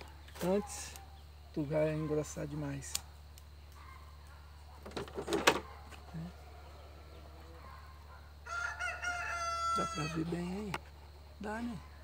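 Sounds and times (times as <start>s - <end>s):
rooster crowing: 5.9s - 10.4s.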